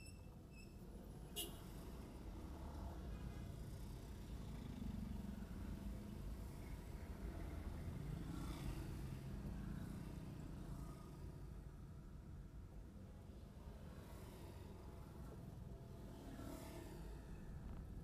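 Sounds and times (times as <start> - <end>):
vehicle engine and road rumble: 14.6 - 18.0.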